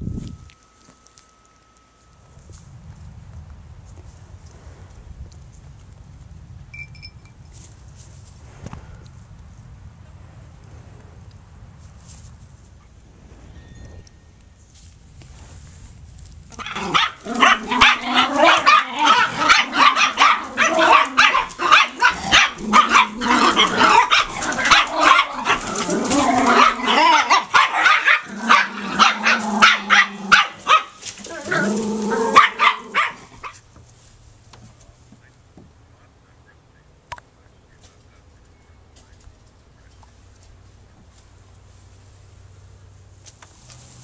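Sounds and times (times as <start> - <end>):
puppies yapping and barking: 16.5 - 33.6.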